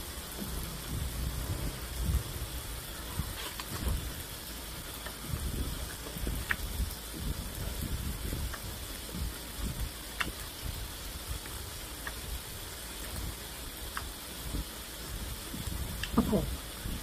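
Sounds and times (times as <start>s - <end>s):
pork belly sizzling: 0.0s - 17.0s
fat spattering pops: 3.0s - 4.3s, 4.9s - 10.8s.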